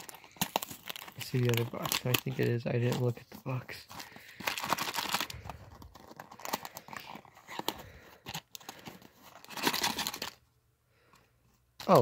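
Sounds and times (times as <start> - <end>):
plastic packaging crinkling: 0.0 - 10.4.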